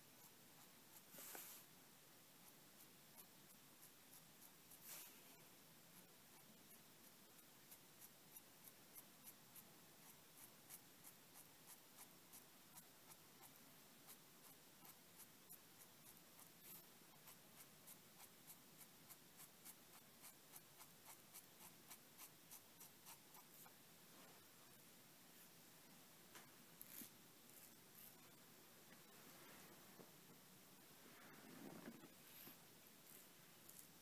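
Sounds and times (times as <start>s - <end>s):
pen nib scratching on paper: 0.0s - 1.7s, 2.3s - 23.8s, 26.8s - 28.4s, 32.2s - 34.0s.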